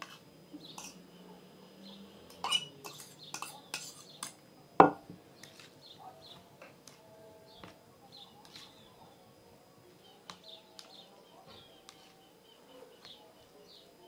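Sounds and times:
food mixed in a bowl clicks: 10.3 - 11.0.

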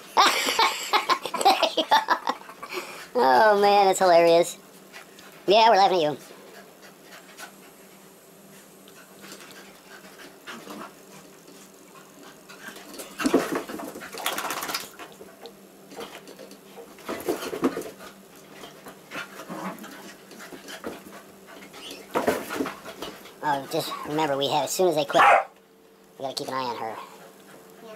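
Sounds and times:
dogs play-fighting vocalizations: 8.9 - 15.4, 17.1 - 24.1.

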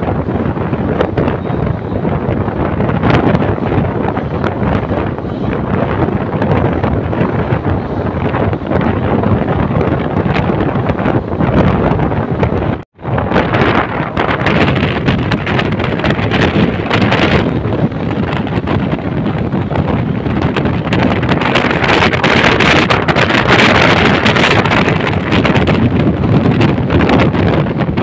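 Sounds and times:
train running noise: 0.0 - 28.0
wind buffeting microphone: 0.0 - 28.0.

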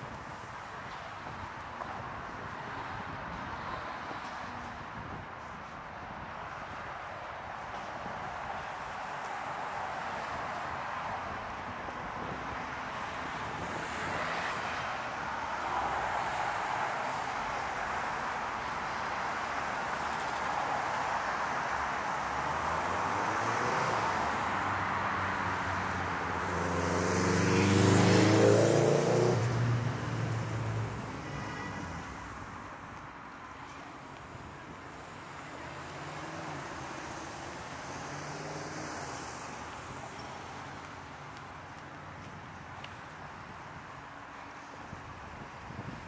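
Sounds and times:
street traffic hum: 0.0 - 46.0
vehicle engine passing close: 26.5 - 30.9.

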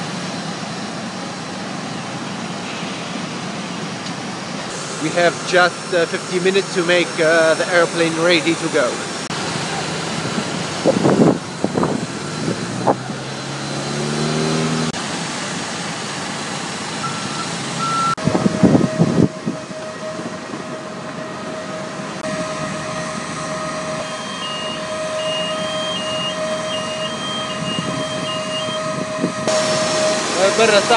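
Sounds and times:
steady whine: 0.0 - 30.9
vehicle engines running: 0.0 - 30.9
two-note electronic beeping: 17.0 - 19.3, 22.4 - 29.0.

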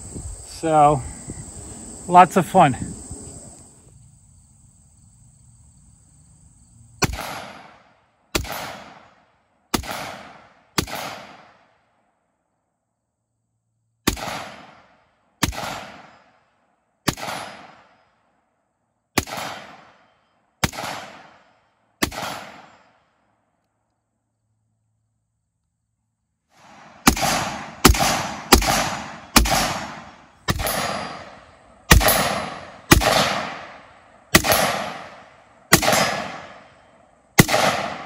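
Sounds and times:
rifle shots: 7.0 - 11.7, 14.0 - 16.3, 17.0 - 18.0, 19.2 - 23.0, 26.6 - 36.7, 37.4 - 38.0.

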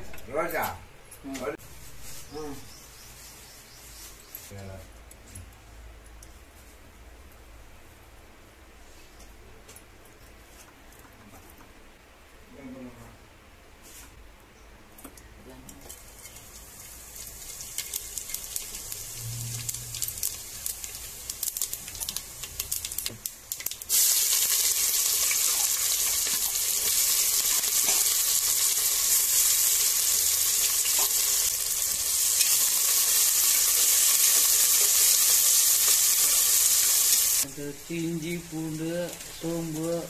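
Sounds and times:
spices crackling in hot oil: 15.6 - 40.0
loud sizzle of frying: 15.7 - 40.0.

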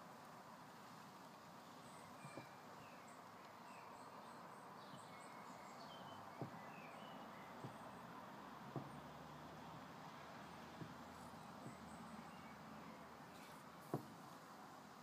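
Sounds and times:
distant bird chirps: 1.7 - 14.4
soft knocks: 6.4 - 6.7, 7.6 - 9.6, 10.5 - 12.3, 13.8 - 14.4.

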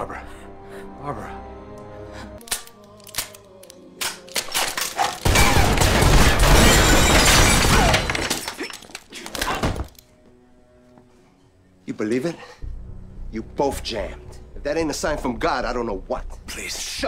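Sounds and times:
glass shattering: 4.4 - 9.8.

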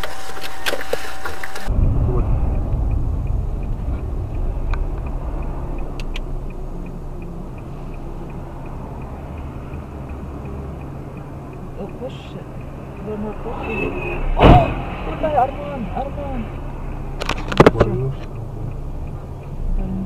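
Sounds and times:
car engine and road noise: 0.0 - 20.0
sharp clicks: 2.5 - 13.8.

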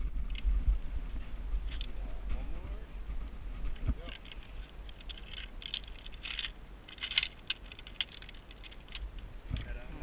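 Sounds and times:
carabiners clinking and jangling: 1.6 - 2.0, 4.0 - 9.9.

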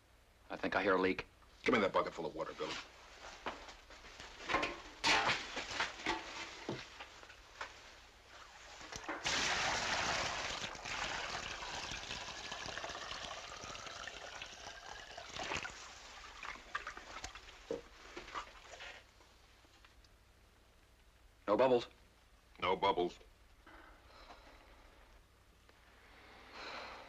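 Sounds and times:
water pouring into a tub: 8.8 - 19.0.

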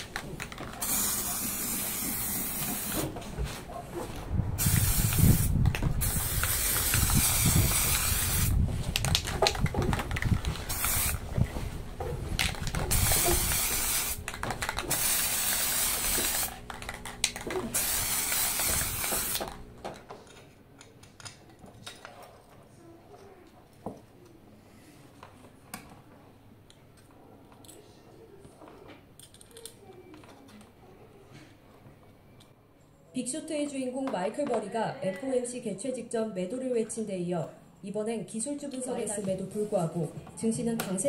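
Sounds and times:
spray paint can hissing: 0.8 - 3.1, 4.6 - 8.6, 10.4 - 11.2, 12.6 - 16.6, 17.6 - 19.5.

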